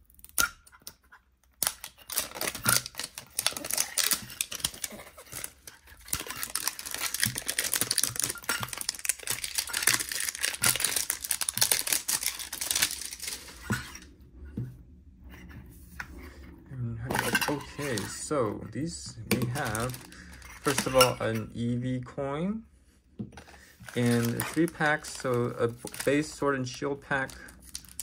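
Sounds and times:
plastic wrapping crinkling and tearing: 1.6 - 14.0, 17.1 - 18.3, 19.3 - 21.2, 23.4 - 28.0.

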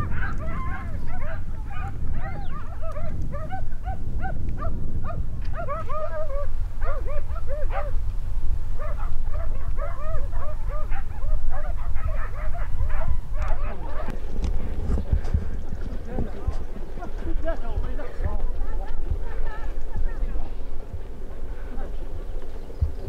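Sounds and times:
hounds baying: 0.0 - 8.0, 8.8 - 18.3
low rumble: 12.6 - 23.0.

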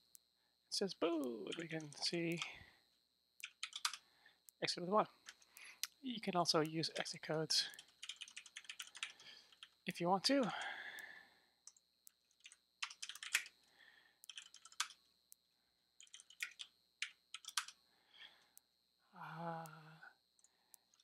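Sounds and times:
typing on computer keyboard: 3.4 - 4.0, 7.7 - 9.8, 11.7 - 13.5, 14.2 - 15.0, 16.0 - 17.8
person humming: 19.2 - 20.0.

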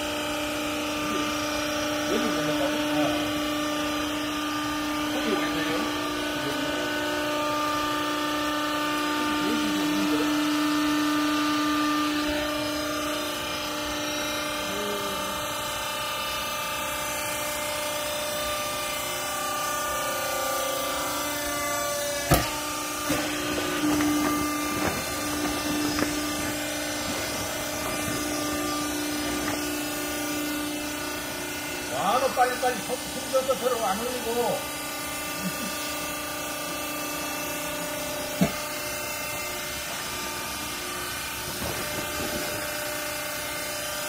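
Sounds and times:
hydraulic power unit humming: 0.0 - 44.0
sharp knocks: 22.2 - 26.3.

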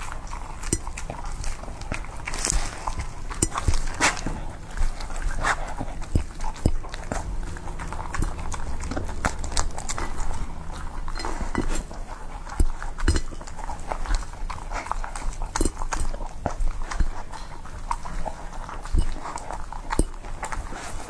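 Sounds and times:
dog chewing wet food: 0.0 - 21.0
knocks against ceramic bowl: 13.0 - 13.4.

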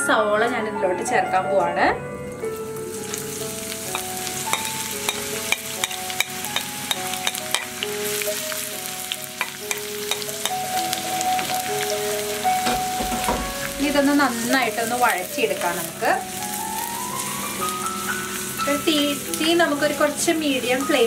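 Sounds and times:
onions sizzling in oil: 2.5 - 21.0.

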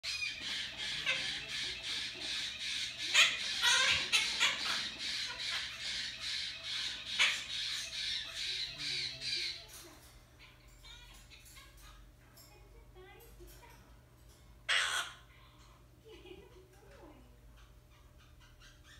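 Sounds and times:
parrot squawking: 0.0 - 12.1, 14.6 - 15.3, 17.5 - 18.9.

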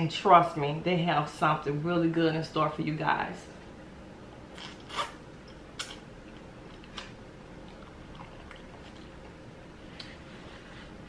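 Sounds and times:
person slurping noodles: 4.6 - 5.2
chewing mouth sounds: 5.8 - 10.2.

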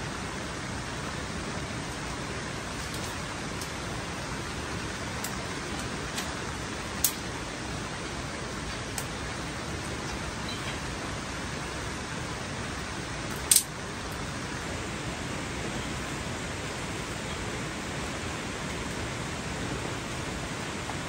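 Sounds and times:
steady rain: 0.0 - 21.0
sharp high click: 13.3 - 13.7.

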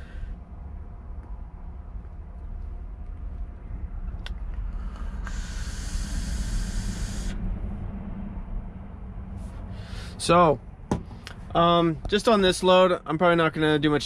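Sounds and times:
truck cab low rumble: 0.0 - 14.0
vape coil sizzling: 5.0 - 7.4.

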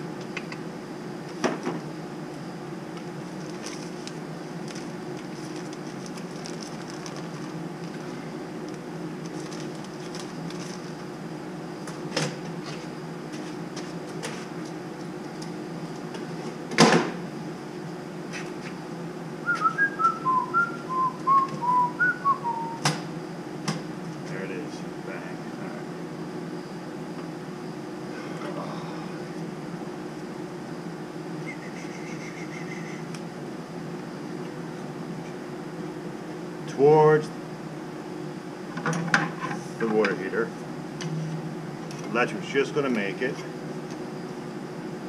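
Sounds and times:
low machine hum: 0.0 - 45.0
person whistling: 19.4 - 22.8, 31.4 - 33.0.

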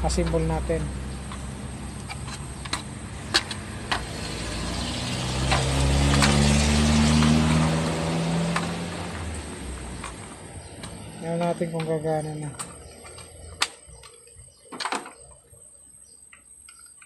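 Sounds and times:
vehicle engine passing by: 0.0 - 13.6.

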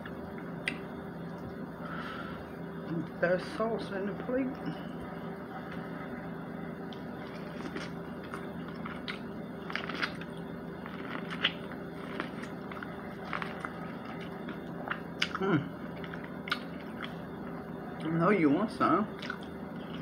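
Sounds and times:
steady low hum: 0.0 - 20.0
chewing fried chicken: 6.8 - 18.1, 19.1 - 20.0.

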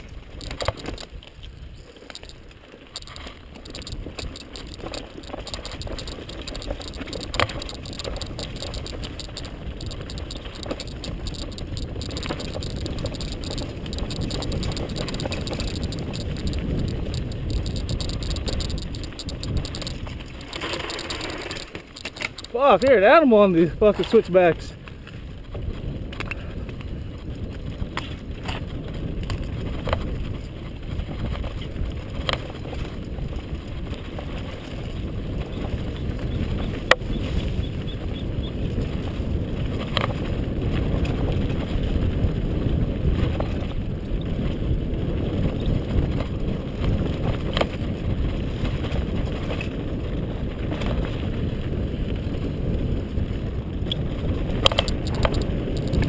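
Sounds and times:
bike clicks and knocks: 0.0 - 23.2, 24.0 - 56.0
wind on microphone: 0.0 - 56.0
tyres rumbling on dirt: 1.8 - 24.7.

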